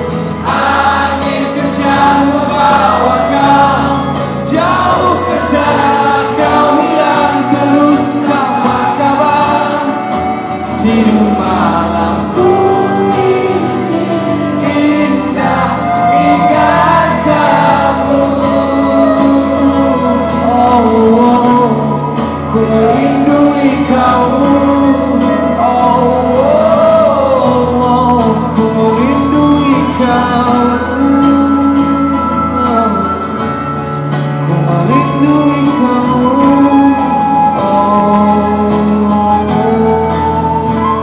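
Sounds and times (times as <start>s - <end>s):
cello: 0.0s - 27.8s
acoustic guitar: 0.0s - 41.0s
flute: 0.0s - 41.0s
person singing: 0.0s - 41.0s.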